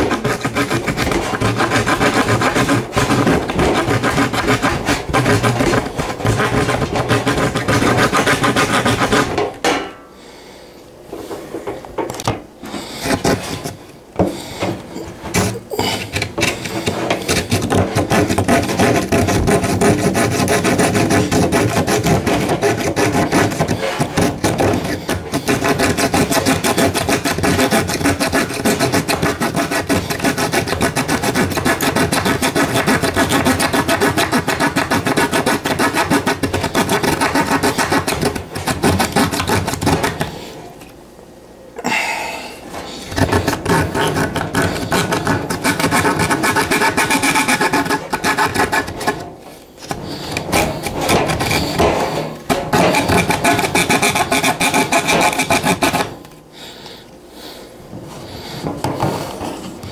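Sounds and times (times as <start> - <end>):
hand saw cutting wood: 0.0 - 9.5, 12.7 - 13.8, 15.3 - 40.4, 43.1 - 49.2, 49.8 - 56.2.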